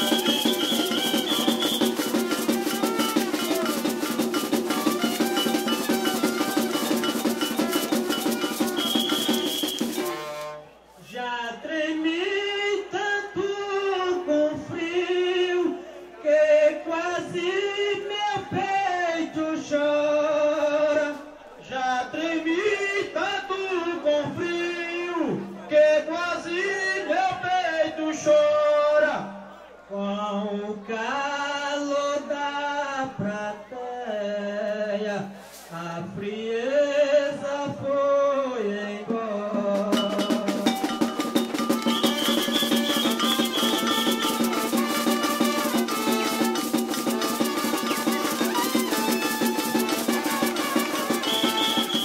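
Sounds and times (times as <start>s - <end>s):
man singing unaccompanied: 0.0s - 9.9s, 11.0s - 52.0s
percussion: 0.0s - 10.6s, 39.1s - 52.0s.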